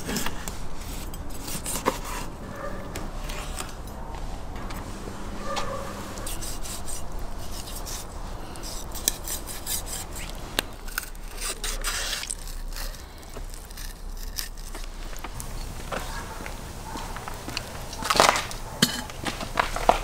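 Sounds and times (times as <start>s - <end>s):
knife scraping through fish: 0.0s - 2.4s, 6.2s - 15.0s.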